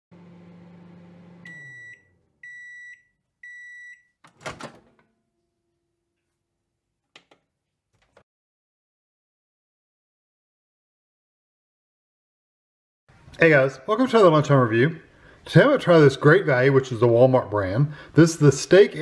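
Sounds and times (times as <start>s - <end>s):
microwave oven hum: 0.1s - 2.8s
microwave door clattering open: 4.3s - 5.0s.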